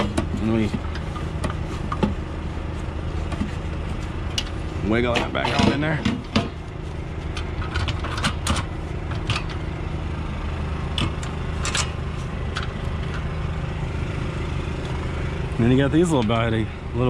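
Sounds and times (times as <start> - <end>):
engine idling hum: 0.0 - 17.0
metal clinks and scrapes: 11.5 - 13.3.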